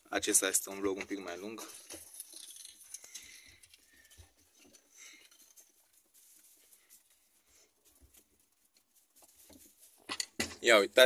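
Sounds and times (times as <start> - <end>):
rabbits rustling on straw: 2.9 - 10.1.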